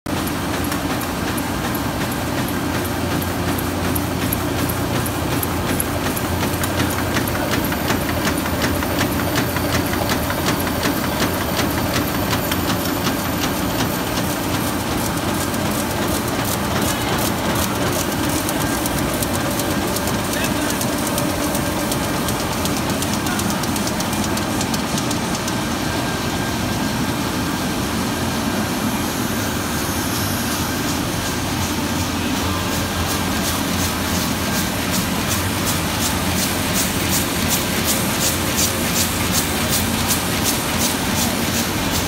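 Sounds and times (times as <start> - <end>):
printing press running: 0.1 - 29.8, 30.6 - 42.0.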